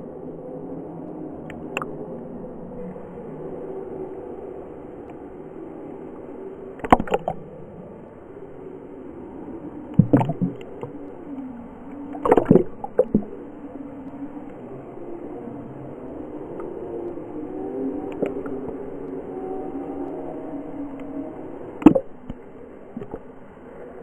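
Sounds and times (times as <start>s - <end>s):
muffled water sloshing: 6.8s - 7.5s, 9.9s - 11.0s, 12.1s - 13.4s, 21.8s - 23.4s.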